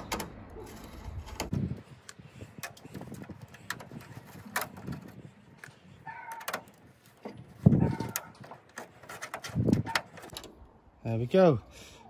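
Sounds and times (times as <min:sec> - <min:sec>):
key clicks and scrapes: 0:00.0 - 0:10.5.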